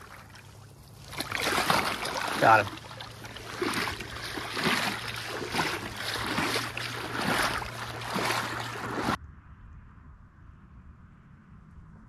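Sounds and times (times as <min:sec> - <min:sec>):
splashing through shallow water: 0:00.0 - 0:09.2.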